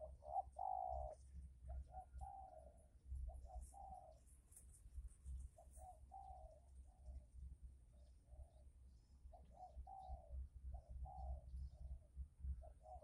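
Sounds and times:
dove cooing: 0.0 - 4.2, 5.6 - 7.1, 9.3 - 13.0.

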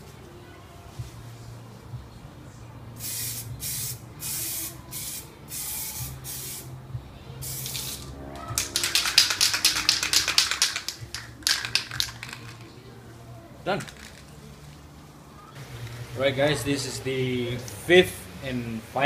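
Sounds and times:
aerosol can spraying: 3.0 - 6.7, 7.4 - 8.1, 8.7 - 12.6
spray can rattling when shaken: 7.4 - 12.8, 13.7 - 14.8.

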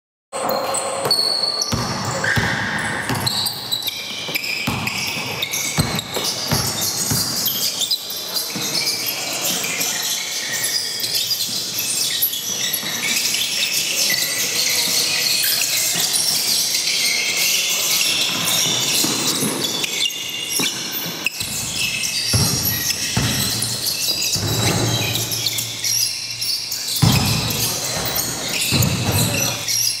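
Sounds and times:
loud din in a hall: 0.4 - 30.0
sharp knocks and bangs: 21.4 - 25.6.

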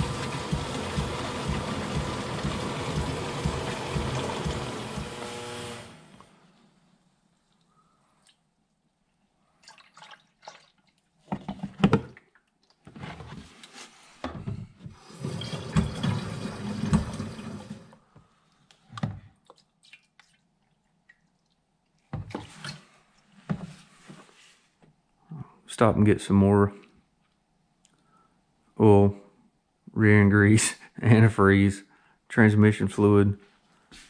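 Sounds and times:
water pouring into a radiator: 0.0 - 5.2, 9.6 - 11.0, 15.0 - 18.0.

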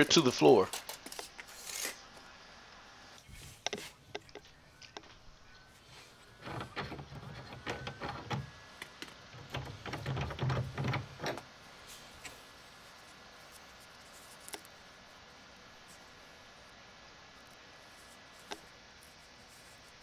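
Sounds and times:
faint room hiss: 0.0 - 20.0.

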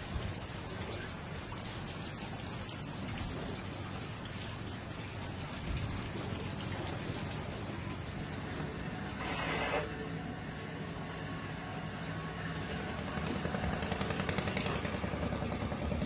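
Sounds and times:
steady rain: 0.0 - 9.3.

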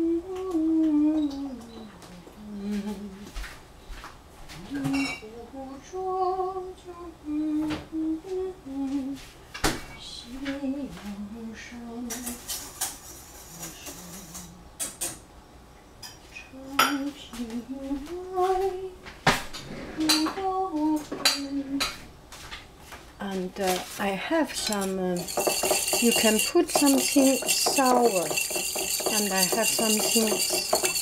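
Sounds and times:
woman humming: 0.0 - 3.3
utensils clinking against dishes: 4.8 - 5.3, 24.4 - 31.0.

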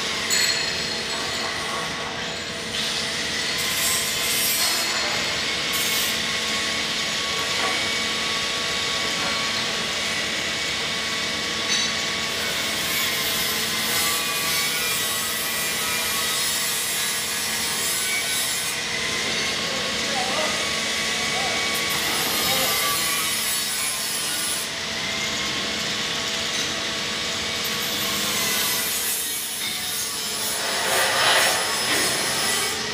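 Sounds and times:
machinery hum: 29.4 - 32.9
machinery hiss: 29.8 - 32.9.

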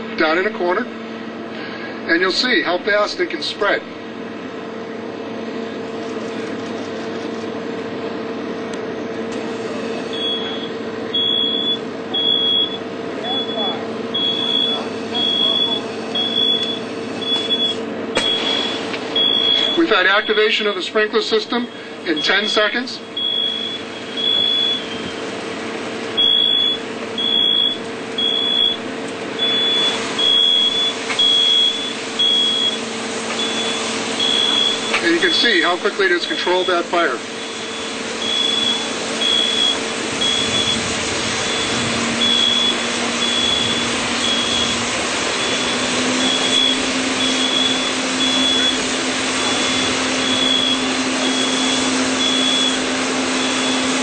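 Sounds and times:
fire truck engine drone: 0.0 - 54.0
smoke alarm beeps: 10.0 - 20.7, 22.1 - 25.3, 26.2 - 35.8, 36.4 - 54.0.

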